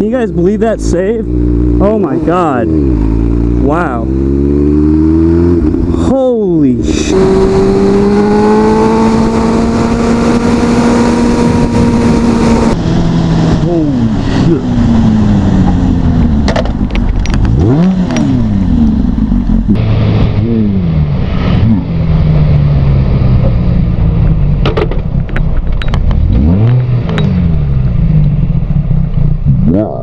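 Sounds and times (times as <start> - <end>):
motorcycle engine revving: 0.0 - 30.0
wind rush on microphone: 6.8 - 18.6.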